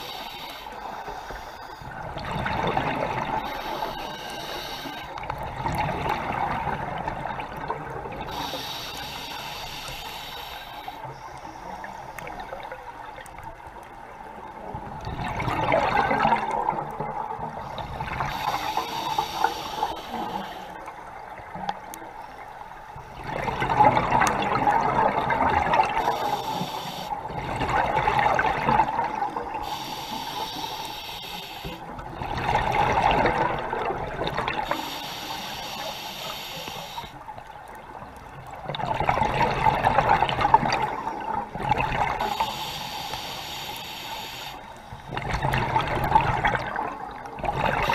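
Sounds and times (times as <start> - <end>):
regulator hiss: 0.0 - 1.8, 3.4 - 5.1, 8.3 - 12.2, 18.2 - 20.8, 26.0 - 27.2, 29.6 - 31.8, 34.6 - 37.2, 42.2 - 45.0
exhaled bubbles rushing: 2.0 - 3.4, 5.4 - 8.3, 14.8 - 18.6, 23.2 - 26.1, 27.2 - 29.6, 32.0 - 34.8, 38.4 - 42.3, 45.1 - 47.9.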